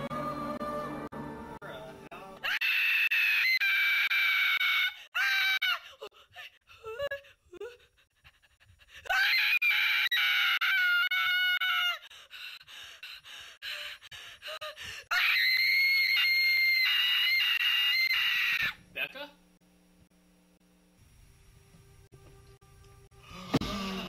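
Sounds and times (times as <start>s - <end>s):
woman screaming: 2.4s - 5.9s, 9.1s - 12.0s, 15.1s - 18.8s
gasping breaths: 12.0s - 15.1s.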